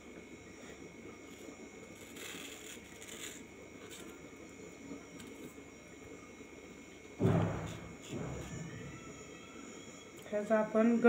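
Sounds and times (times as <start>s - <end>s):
knife scraping fruit skin: 1.3s - 4.2s.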